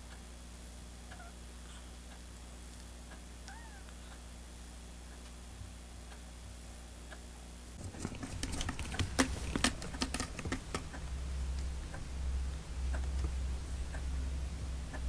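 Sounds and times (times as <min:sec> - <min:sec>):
kitten claws scratching cardboard: 0:07.8 - 0:10.9.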